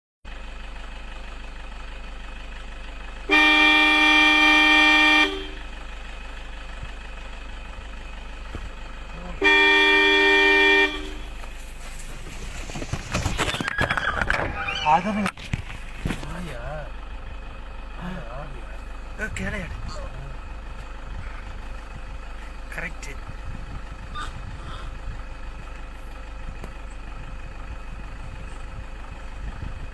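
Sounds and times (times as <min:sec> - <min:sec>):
vehicle engine idling: 0:00.3 - 0:29.9
vehicle horn blast: 0:03.2 - 0:05.7, 0:09.2 - 0:11.4.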